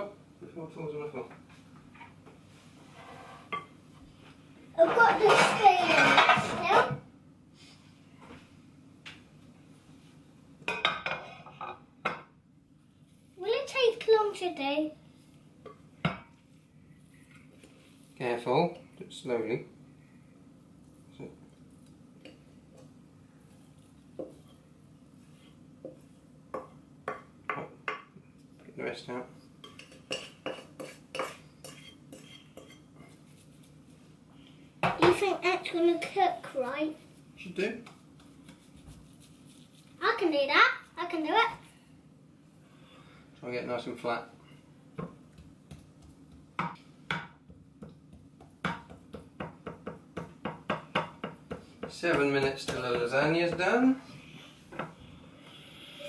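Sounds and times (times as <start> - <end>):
wooden spoon knocking on bowl: 45.0 - 53.7.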